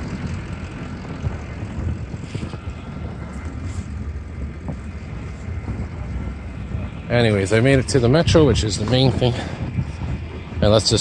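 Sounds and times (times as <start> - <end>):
vehicle engines in street traffic: 0.0 - 11.0.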